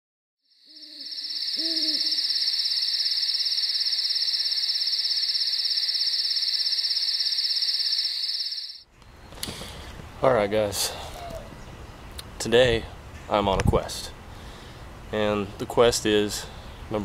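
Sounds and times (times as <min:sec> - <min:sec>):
fast-pulsing insect trill: 0:00.5 - 0:08.8
owl hooting: 0:00.7 - 0:07.4.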